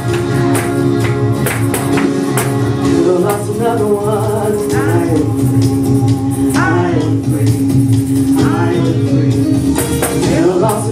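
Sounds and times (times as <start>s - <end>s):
held keyboard chord: 0.0s - 10.9s
steady percussion beat: 0.0s - 10.9s
woman singing into microphone: 2.8s - 7.7s, 8.3s - 10.9s.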